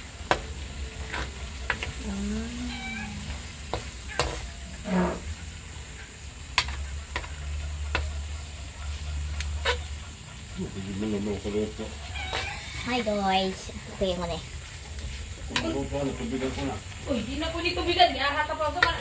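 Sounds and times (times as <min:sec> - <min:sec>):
food sizzling: 0:00.0 - 0:19.0
metal spatula scraping a wok: 0:00.3 - 0:10.5, 0:11.9 - 0:13.1
meow-like calls: 0:02.2 - 0:03.5, 0:12.0 - 0:12.9.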